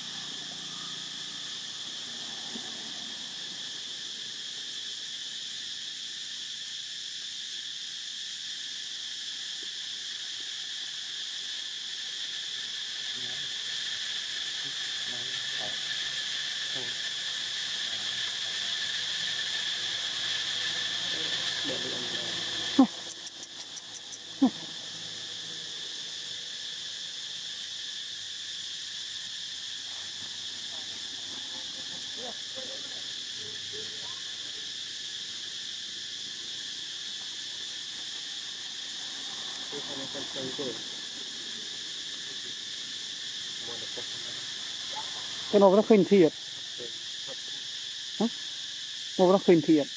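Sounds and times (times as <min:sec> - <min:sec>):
insect chorus buzzing: 0:00.0 - 0:49.9
quick run of ticks: 0:22.9 - 0:24.4
sharp clicks: 0:23.0 - 0:24.2.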